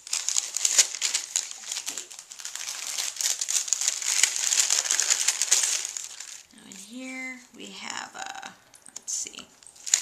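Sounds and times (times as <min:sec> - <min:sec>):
paper and card rustling: 0:00.0 - 0:06.5, 0:09.6 - 0:10.0.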